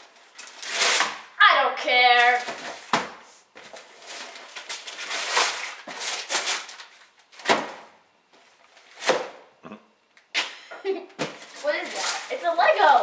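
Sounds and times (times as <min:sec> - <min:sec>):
wrapping paper ripping and crinkling: 0:03.7 - 0:07.2, 0:11.4 - 0:13.0.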